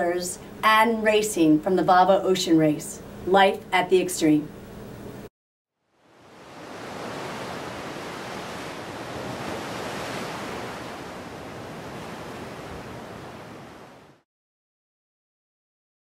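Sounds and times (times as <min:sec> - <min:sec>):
ocean surf washing: 0:06.0 - 0:14.2.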